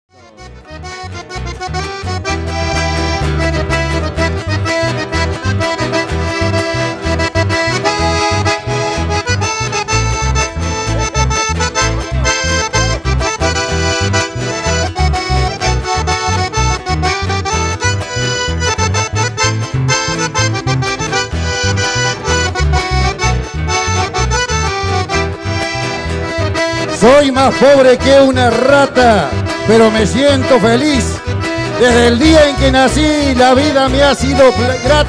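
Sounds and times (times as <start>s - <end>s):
accordion melody: 0.1s - 35.0s
pulsing bass line: 0.2s - 35.0s.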